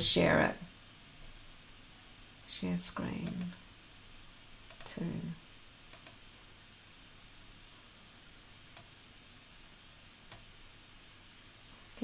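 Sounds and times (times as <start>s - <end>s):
faint computer mouse clicks: 3.2s - 3.6s, 4.7s - 4.9s, 5.9s - 6.2s, 8.7s - 8.9s, 10.3s - 10.5s.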